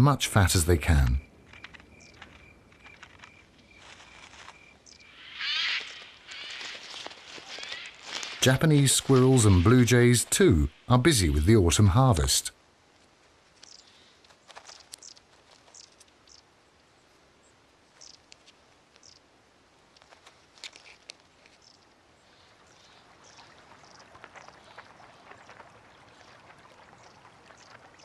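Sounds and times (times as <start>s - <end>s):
bird rustling in dry leaves: 1.6s - 9.4s, 13.0s - 16.4s, 19.8s - 21.7s.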